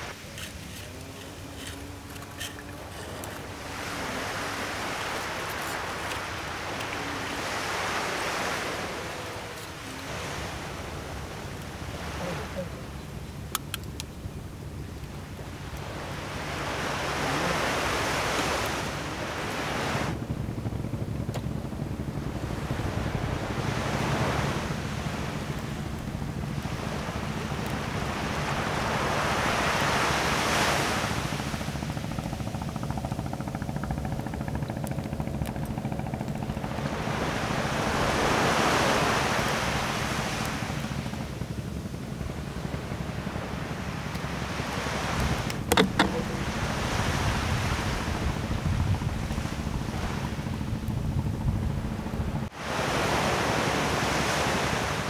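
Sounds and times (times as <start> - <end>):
surf washing onto sandy beach: 0.0 - 2.0, 2.8 - 12.7, 15.5 - 20.2, 22.4 - 31.9, 36.7 - 41.3, 43.2 - 50.4, 52.5 - 55.0.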